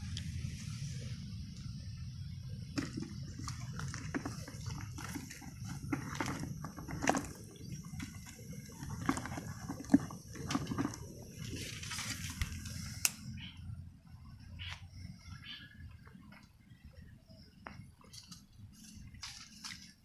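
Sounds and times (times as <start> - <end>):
fish flapping in a bucket: 2.7 - 12.6.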